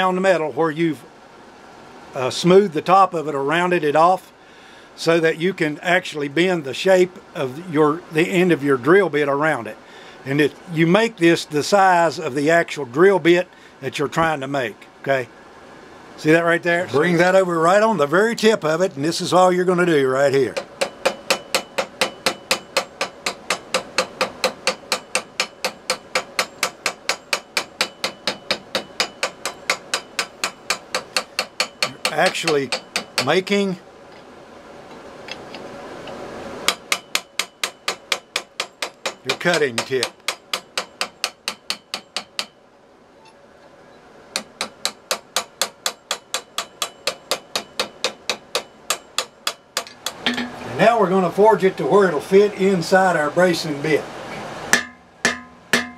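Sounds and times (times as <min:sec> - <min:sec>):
hammer striking hot steel: 0:20.5 - 0:33.4, 0:36.6 - 0:42.6, 0:44.3 - 0:50.7, 0:54.7 - 0:55.9.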